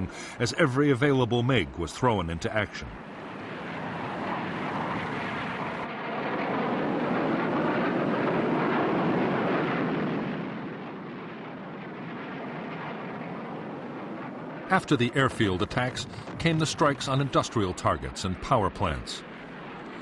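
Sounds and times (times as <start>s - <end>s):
jet engine roar: 0.0s - 20.0s.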